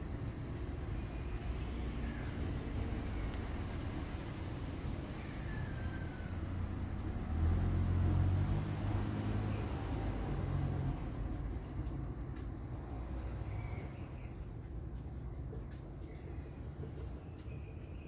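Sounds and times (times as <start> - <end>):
vehicle engine passing: 2.5 - 13.6.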